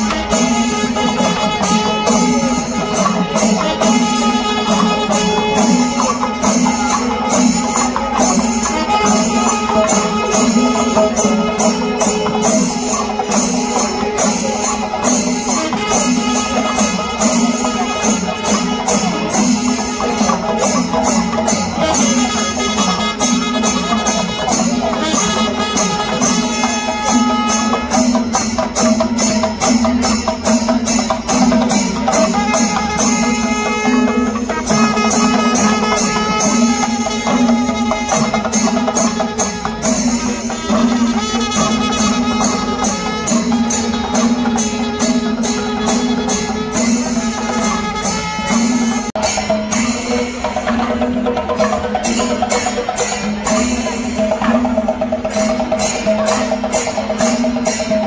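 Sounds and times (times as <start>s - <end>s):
fast percussion strikes: 0.0s - 58.0s.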